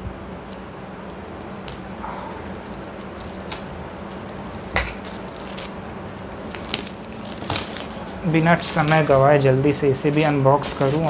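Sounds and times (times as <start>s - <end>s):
plastic wrapping crackling: 0.4s - 11.0s
plastic wrap sharp crack: 0.5s - 9.1s.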